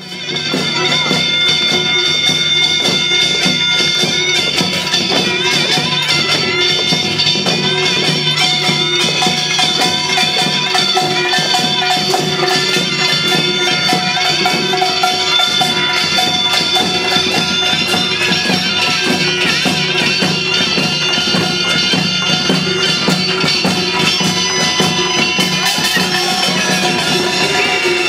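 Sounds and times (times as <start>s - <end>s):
reedy wind instrument melody: 0.0s - 28.0s
fast dense drumming: 0.1s - 28.0s
metallic gong clanging: 4.6s - 28.0s.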